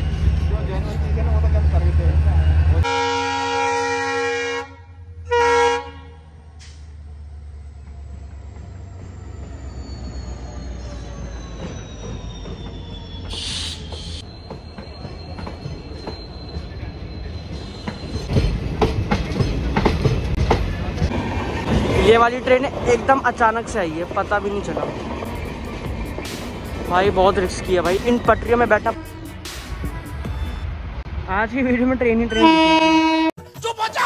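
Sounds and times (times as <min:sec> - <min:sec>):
diesel locomotive engine rumble: 0:00.0 - 0:33.3
locomotive horn blasts: 0:02.8 - 0:06.2, 0:32.3 - 0:33.4.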